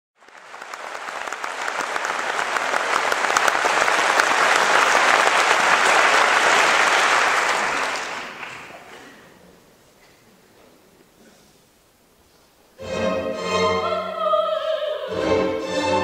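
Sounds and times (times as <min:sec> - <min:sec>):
audience applauding: 0:00.2 - 0:09.4.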